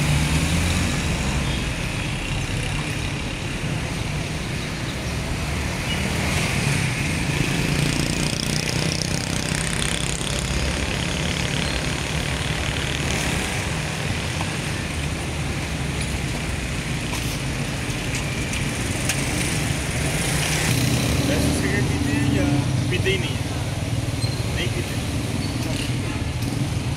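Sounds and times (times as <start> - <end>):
street traffic engines: 0.0 - 26.9.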